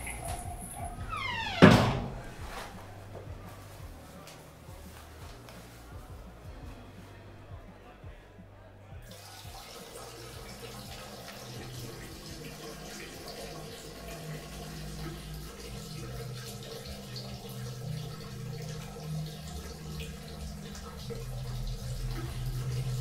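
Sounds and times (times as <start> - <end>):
water trickling and dripping: 0.0 - 1.6, 9.1 - 23.0.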